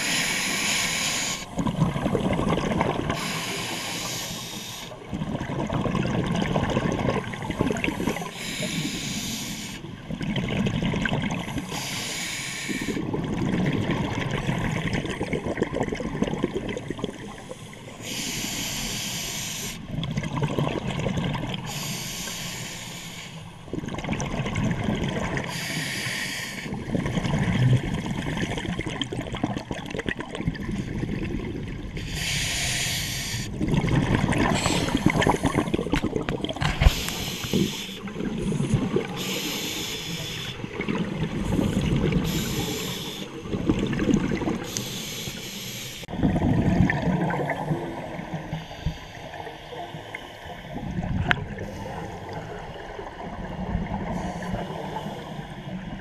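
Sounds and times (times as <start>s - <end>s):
regulator hissing inhale: 0.0s - 1.5s, 3.2s - 5.0s, 8.2s - 9.9s, 11.6s - 13.0s, 17.5s - 19.8s, 21.7s - 23.4s, 25.5s - 26.7s, 32.0s - 33.5s, 36.8s - 38.1s, 39.2s - 40.7s, 41.5s - 43.4s, 44.7s - 46.1s, 48.5s - 50.9s
bubbling exhaled air: 23.8s - 45.4s, 46.0s - 56.0s.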